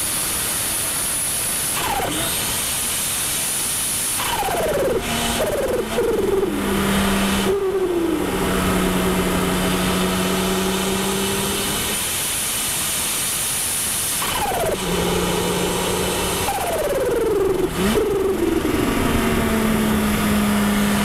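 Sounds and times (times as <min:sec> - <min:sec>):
turbocharged car engine shifting gears: 0:01.7 - 0:02.9, 0:04.1 - 0:12.3, 0:14.1 - 0:21.0.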